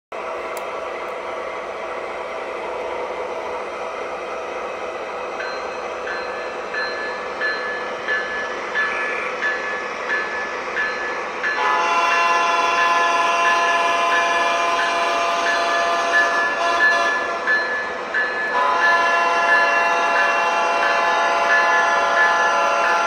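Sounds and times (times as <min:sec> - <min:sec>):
model train diesel engine sound: 0:00.1 - 0:23.0
train wheels running on track: 0:00.1 - 0:23.0
locomotive bell ringing: 0:05.3 - 0:23.0.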